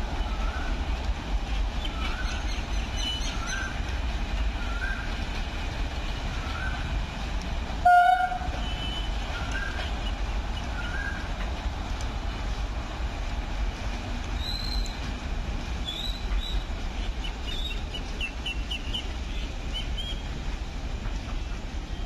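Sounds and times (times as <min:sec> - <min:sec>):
distant locomotive rumble: 0:00.0 - 0:22.0
train horn: 0:07.8 - 0:09.3.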